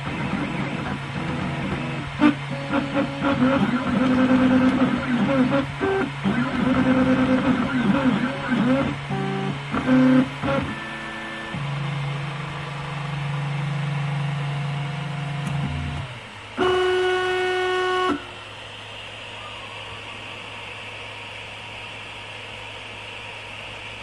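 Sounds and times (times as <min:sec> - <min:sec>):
stepper motors singing tones: 0:00.0 - 0:12.5.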